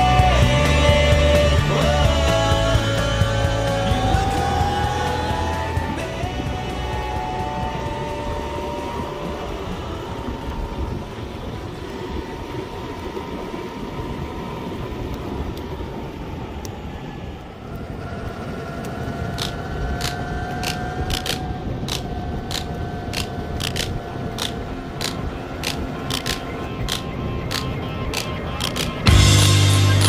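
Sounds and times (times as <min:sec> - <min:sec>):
skateboard wheels rumbling on asphalt: 0:00.0 - 0:30.0
thin motor whine: 0:00.0 - 0:30.0
wind: 0:00.0 - 0:30.0
sharp clicks: 0:18.7 - 0:29.6.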